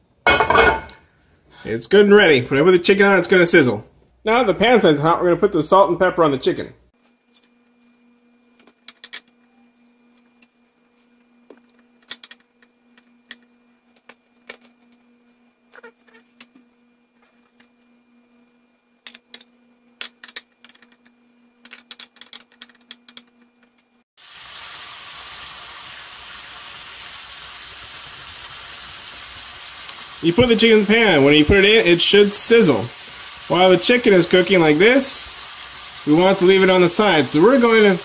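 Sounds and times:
chicken sizzling in hot oil: 24.2s - 38.0s.

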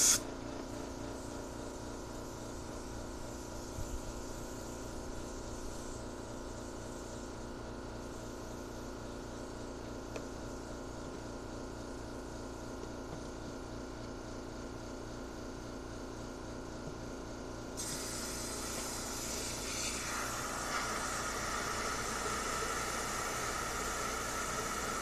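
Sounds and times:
compressed air hissing: 0.0s - 0.2s, 17.8s - 25.0s
air compressor running: 0.0s - 25.0s.

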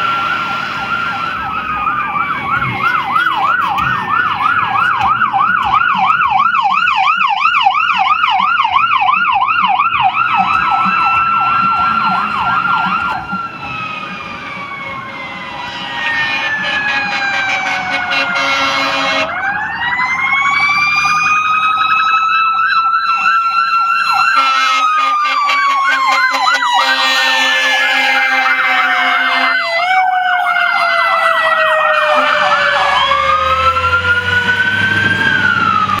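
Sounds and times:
electronic siren warbling: 0.0s - 36.0s
low air horn: 15.4s - 19.4s, 24.3s - 29.8s, 31.7s - 33.1s.

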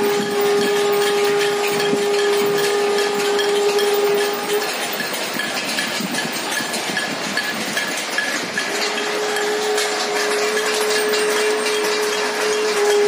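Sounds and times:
steady horn-like note: 0.0s - 4.8s, 8.7s - 13.0s.

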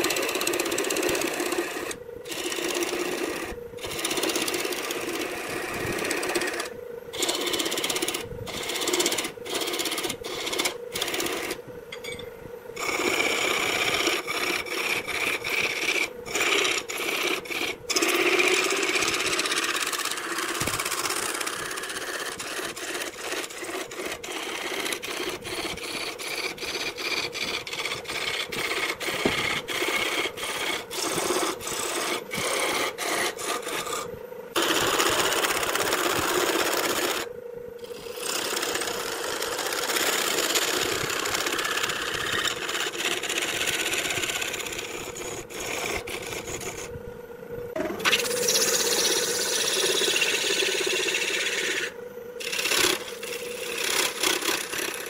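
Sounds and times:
lathe tool cutting wood: 0.0s - 11.6s, 12.8s - 46.9s, 47.8s - 55.0s
lathe motor hum: 0.0s - 55.0s.

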